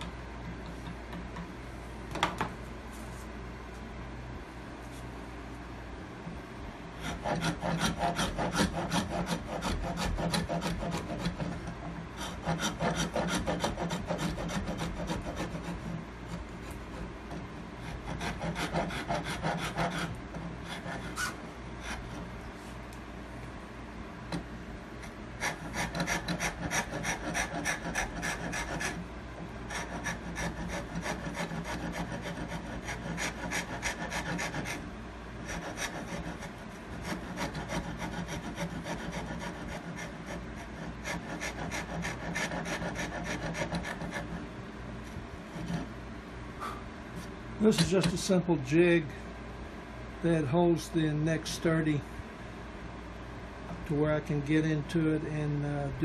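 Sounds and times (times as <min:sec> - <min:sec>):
hand file rasping wood: 0:07.0 - 0:16.4, 0:17.8 - 0:22.2, 0:25.4 - 0:29.0, 0:29.7 - 0:34.8, 0:35.4 - 0:44.4, 0:45.5 - 0:45.9.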